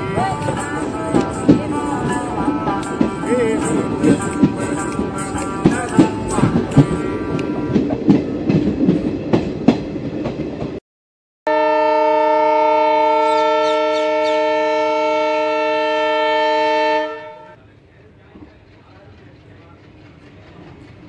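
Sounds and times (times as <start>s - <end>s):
train horn chord: 0.0s - 8.1s, 11.5s - 17.6s.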